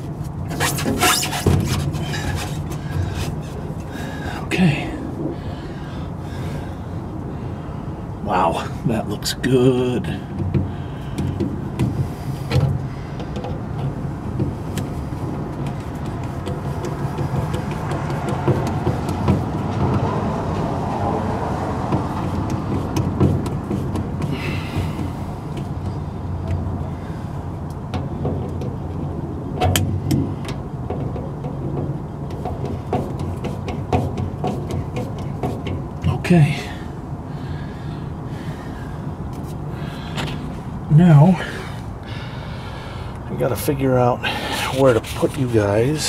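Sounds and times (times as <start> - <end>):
steady low rumble: 0.0 - 46.0
short scrape: 0.5 - 3.4.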